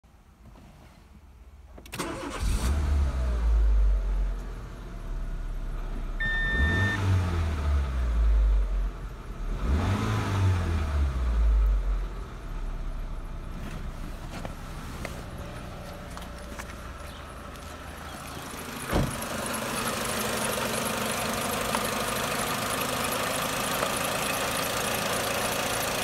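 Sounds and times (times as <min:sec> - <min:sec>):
car engine starting and revving: 0:01.9 - 0:26.0
dashboard warning beep: 0:06.2 - 0:07.2.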